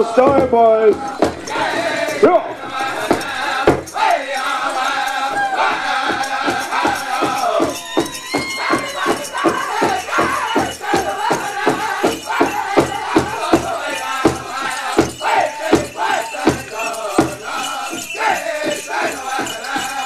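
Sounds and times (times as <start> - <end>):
big drum steady beat: 0.0 - 2.2, 2.8 - 4.2, 9.4 - 17.5
high-pitched singing: 0.0 - 20.0.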